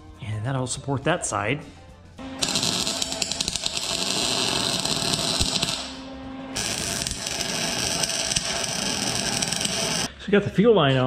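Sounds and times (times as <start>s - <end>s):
arc welding crackling hiss: 2.4s - 10.1s.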